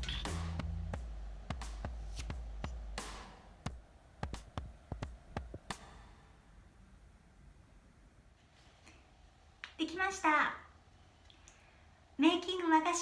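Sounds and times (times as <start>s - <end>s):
background music: 0.0s - 6.3s
sharp irregular taps: 1.5s - 6.0s.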